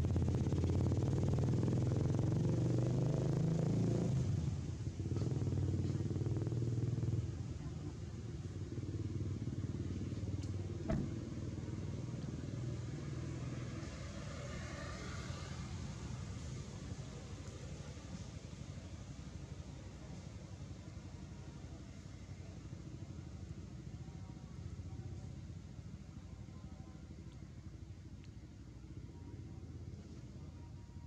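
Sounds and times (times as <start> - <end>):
vehicle engine rumbling: 0.0 - 31.0
short knock: 10.9 - 11.2.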